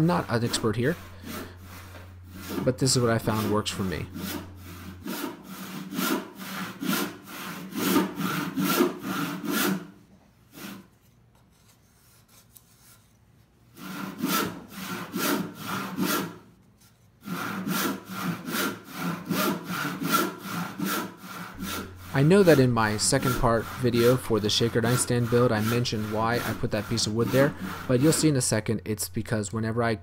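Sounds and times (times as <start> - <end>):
handsaw rasping strokes: 0.0 - 10.9, 13.8 - 16.5, 17.2 - 29.4.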